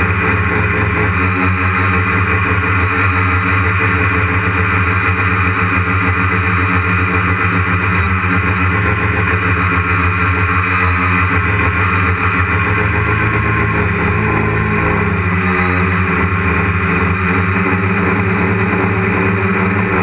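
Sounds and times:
quadcopter propellers droning: 0:00.0 - 0:20.0.

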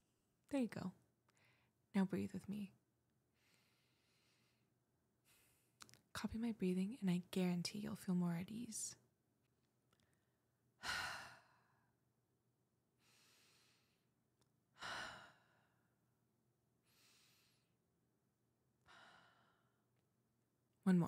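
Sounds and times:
woman breathing deeply: 0:03.4 - 0:05.7, 0:13.0 - 0:14.1, 0:14.8 - 0:16.0, 0:16.8 - 0:17.8, 0:18.8 - 0:19.9.

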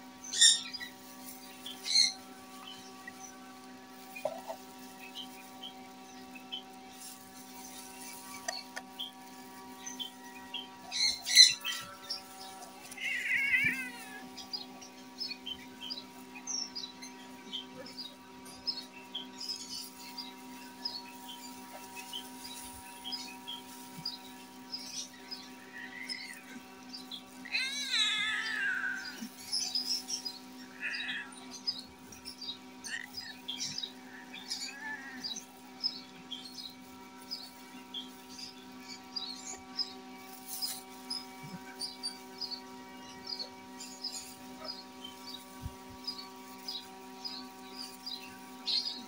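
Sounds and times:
small birds chirping: 0:00.0 - 0:49.0
steady hum: 0:00.0 - 0:49.0
plastic glove rustling: 0:00.6 - 0:10.1, 0:19.6 - 0:26.4, 0:40.2 - 0:41.4
cat crying high-pitched: 0:12.9 - 0:14.3, 0:27.4 - 0:29.4, 0:30.8 - 0:31.3.

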